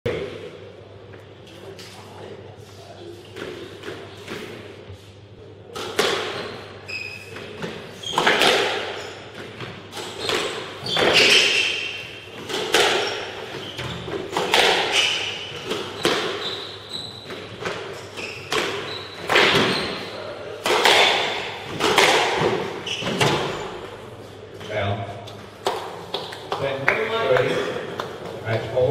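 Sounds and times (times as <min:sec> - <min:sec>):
shoes squeaking on wooden floor: 0:06.3 - 0:20.2, 0:22.4 - 0:23.9
squash ball cracking off rackets: 0:07.6 - 0:13.4, 0:14.1 - 0:16.4, 0:18.5 - 0:20.0, 0:20.6 - 0:23.6.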